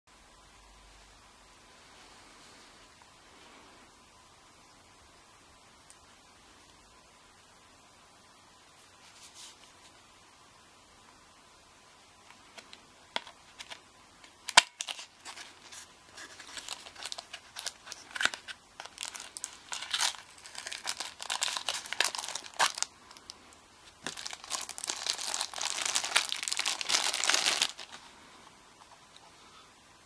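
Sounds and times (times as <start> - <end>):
cardboard packaging opening: 14.4 - 23.3, 24.0 - 28.0
plastic bag crinkling: 14.4 - 28.0.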